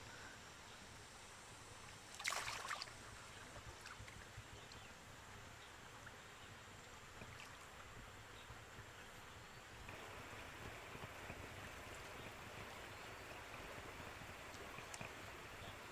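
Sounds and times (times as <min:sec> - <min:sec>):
water dripping and lapping: 0:01.9 - 0:04.8, 0:07.1 - 0:08.0, 0:09.9 - 0:15.9
river water splashing: 0:02.0 - 0:04.3.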